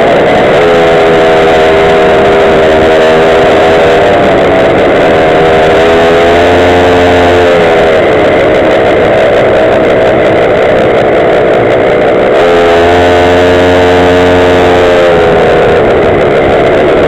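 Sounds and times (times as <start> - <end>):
rushing noise: 0.0 - 17.0
small scooter engine buzzing: 0.0 - 17.0.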